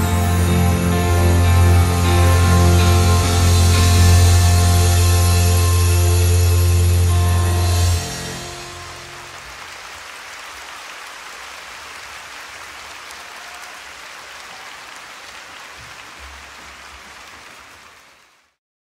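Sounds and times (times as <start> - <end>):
audience applauding: 7.6 - 18.6.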